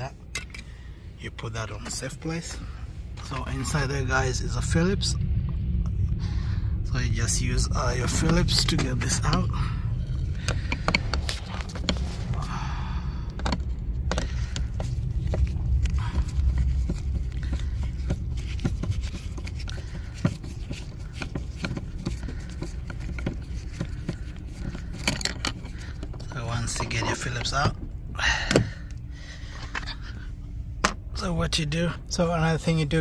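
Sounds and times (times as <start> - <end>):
low rumble: 0.0 - 33.0
screwdriver clicking and scraping: 18.0 - 26.2.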